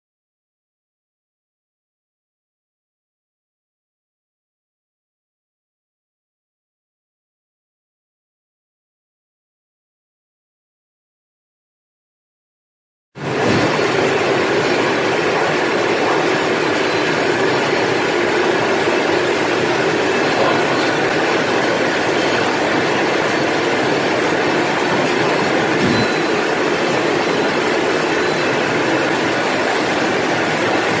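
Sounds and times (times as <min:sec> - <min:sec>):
machine churning: 0:13.2 - 0:31.0.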